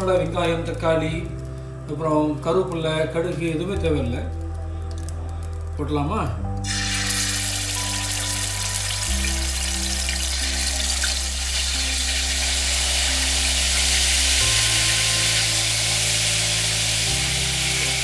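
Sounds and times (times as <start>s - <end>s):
low held music chords: 0.0s - 18.0s
chicken sizzling in hot oil: 6.6s - 18.0s.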